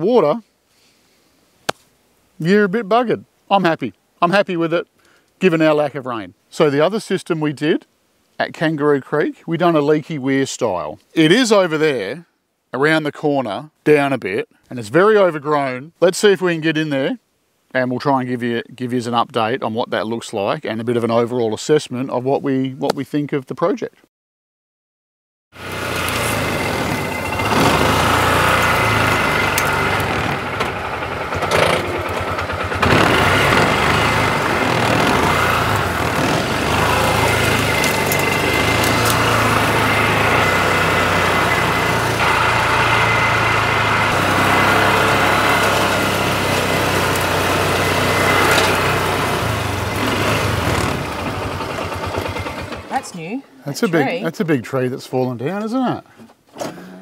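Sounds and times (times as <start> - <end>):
utility vehicle engine running: 25.6 - 53.0.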